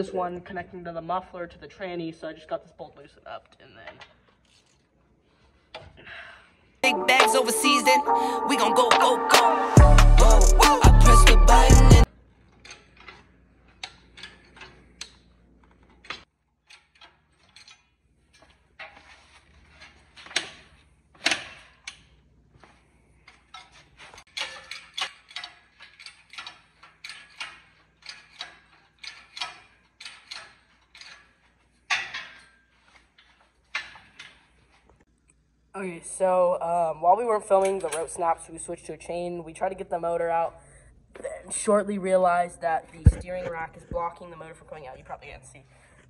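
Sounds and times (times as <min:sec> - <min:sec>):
hydraulic hoist pump clicking: 0:24.3 - 0:32.5.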